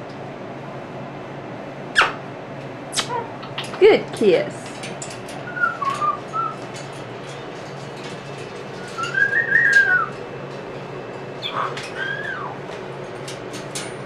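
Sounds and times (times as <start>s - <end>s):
claws and beak clicking on cage: 2.0s - 14.0s
cockatoo whistling: 5.4s - 6.6s, 8.8s - 10.1s, 11.4s - 12.6s.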